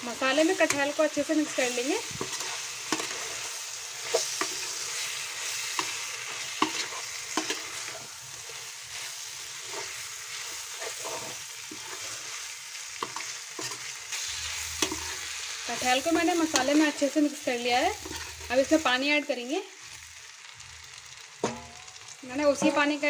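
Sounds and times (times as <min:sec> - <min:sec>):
masala sizzling: 0:00.0 - 0:23.0
spatula scraping pan: 0:00.2 - 0:17.2, 0:17.8 - 0:18.8.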